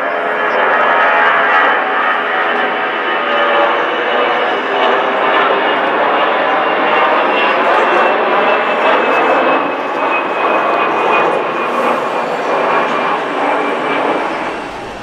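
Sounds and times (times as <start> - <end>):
high engine whine: 0.0 - 15.0
jet engines roaring: 0.0 - 15.0.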